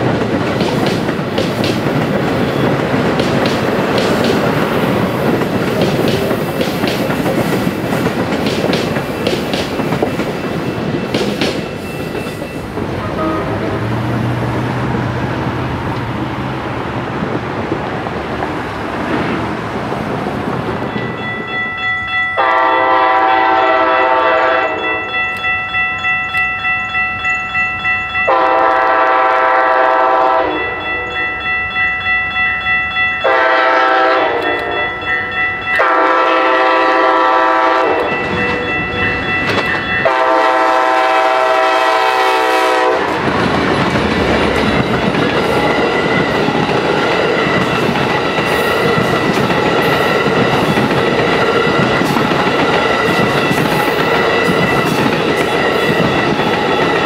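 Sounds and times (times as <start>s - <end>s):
train wheels clattering over rails: 0.0s - 13.0s, 37.3s - 57.0s
locomotive air horn blasts: 13.0s - 13.9s, 22.4s - 25.0s, 28.3s - 30.8s, 33.2s - 35.0s, 35.8s - 38.1s, 40.0s - 43.2s.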